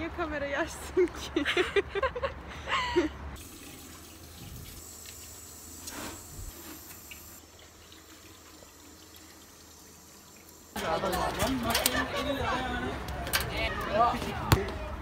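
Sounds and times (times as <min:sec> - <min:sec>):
water running from a tap: 0:03.4 - 0:10.8.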